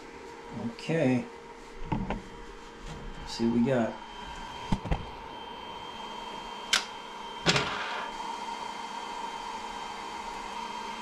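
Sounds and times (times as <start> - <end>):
printer hum with high whine: 2.9 - 11.0.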